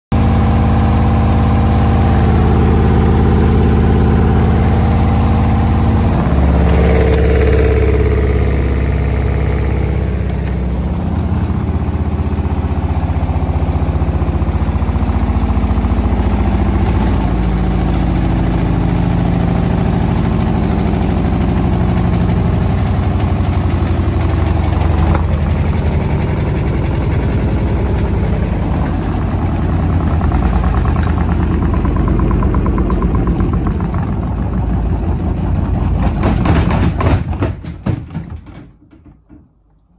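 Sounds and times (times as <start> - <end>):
washing machine drum humming: 0.1 - 39.9
rapid rhythmic banging: 14.6 - 39.6.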